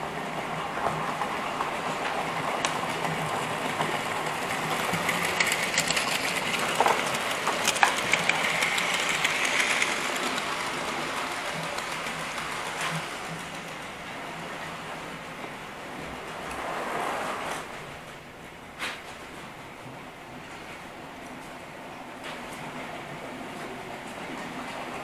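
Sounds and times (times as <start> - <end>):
model train wheels clattering: 0.8 - 15.6
model train motor whine: 4.6 - 13.5.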